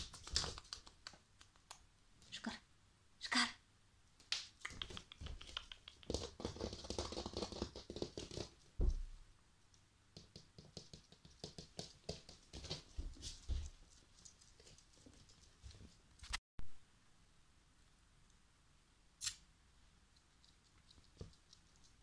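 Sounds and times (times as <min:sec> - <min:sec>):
puppy claws clicking on wooden floor: 0:00.0 - 0:01.8, 0:04.6 - 0:08.6, 0:10.2 - 0:15.9.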